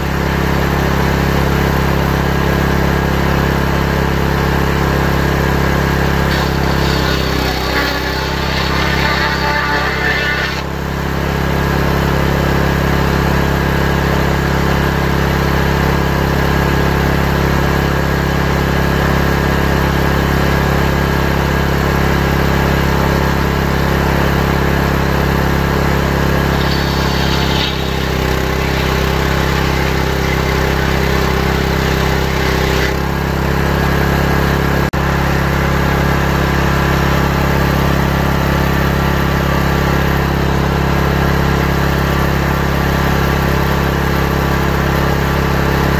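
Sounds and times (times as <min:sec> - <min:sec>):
table saw running: 0:05.9 - 0:11.0, 0:25.1 - 0:34.0.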